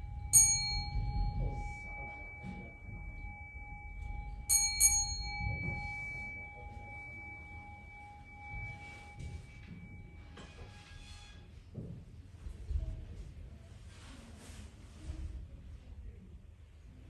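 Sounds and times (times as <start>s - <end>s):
bowl bell struck: 0.0s - 10.8s
two-note bell ring: 0.0s - 10.9s
soft rustling: 13.2s - 15.6s.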